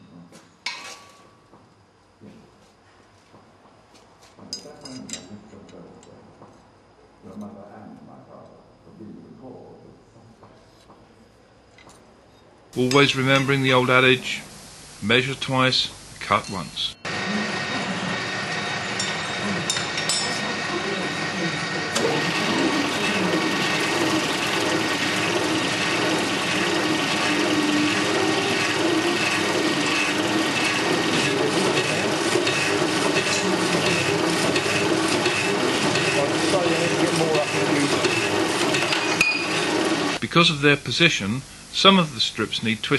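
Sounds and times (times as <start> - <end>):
power hacksaw sawing steel: 16.5 - 40.2.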